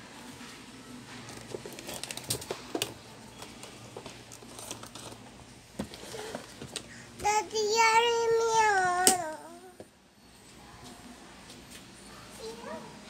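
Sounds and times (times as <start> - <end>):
crinkling rustles: 0.4 - 6.8.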